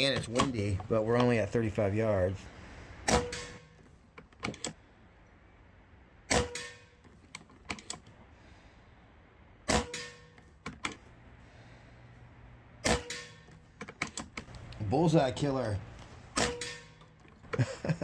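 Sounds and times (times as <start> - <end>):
air rifle shots: 3.0 - 3.8, 6.3 - 7.0, 9.7 - 10.4, 12.8 - 13.5, 16.3 - 17.0
rifle lever clicks: 4.2 - 4.8.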